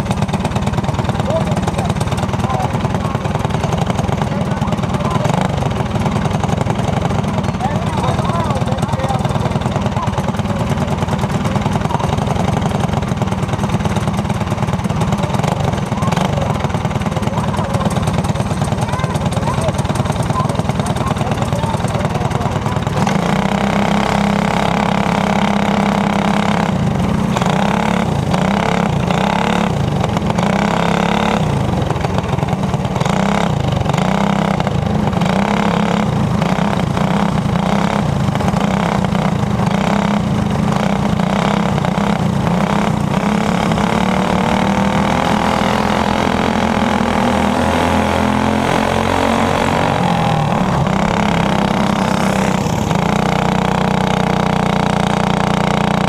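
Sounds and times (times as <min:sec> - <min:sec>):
racing kart engine revving: 0:00.0 - 0:56.0
second kart engine: 0:00.0 - 0:56.0.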